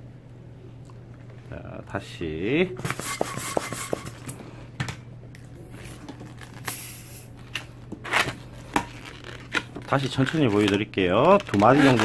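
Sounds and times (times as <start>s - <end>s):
short air hiss: 6.6s - 7.3s
latex balloon squeaks and rubbing: 8.0s - 10.7s, 11.4s - 12.0s.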